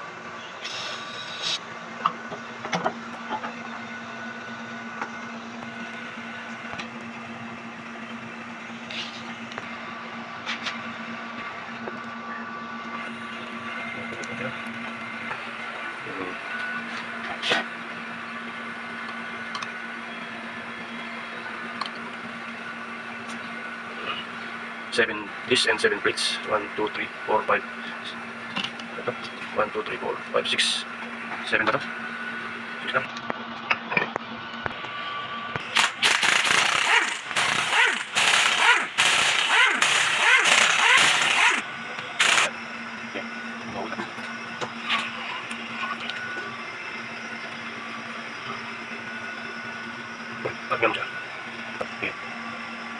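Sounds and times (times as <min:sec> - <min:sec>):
steady hum: 0:00.0 - 0:52.9
impact wrench hammering: 0:35.7 - 0:41.6, 0:42.2 - 0:42.5.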